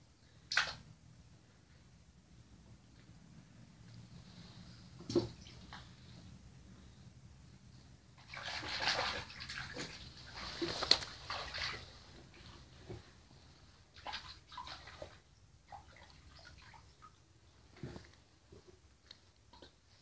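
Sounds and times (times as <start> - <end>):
wet squelching and sloshing: 8.2 - 12.7, 13.9 - 17.2.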